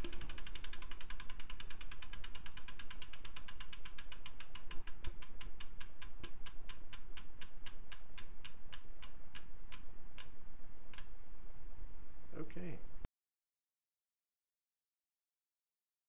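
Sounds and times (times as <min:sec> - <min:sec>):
freehub pawls clicking: 0:00.0 - 0:10.3.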